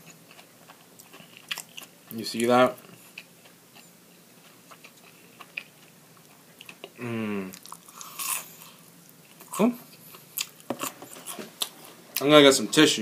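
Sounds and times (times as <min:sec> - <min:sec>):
chewing and mouth smacks: 0:00.3 - 0:01.9
person humming: 0:07.0 - 0:07.6.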